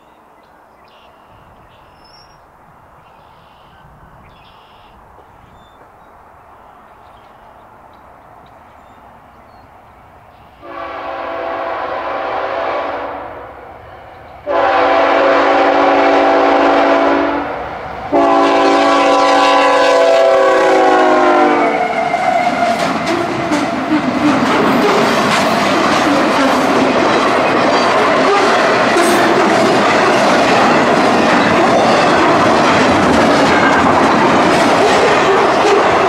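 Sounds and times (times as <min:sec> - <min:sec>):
train rumbling and clattering: 0:05.0 - 0:36.0
locomotive air horn blasts: 0:10.6 - 0:13.6, 0:14.4 - 0:22.8, 0:34.9 - 0:36.0.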